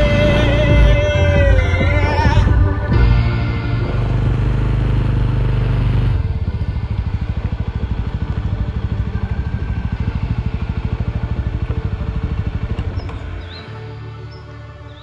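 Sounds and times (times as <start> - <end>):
background music: 0.0 - 15.0
motorcycle engine at low revs: 0.0 - 15.0.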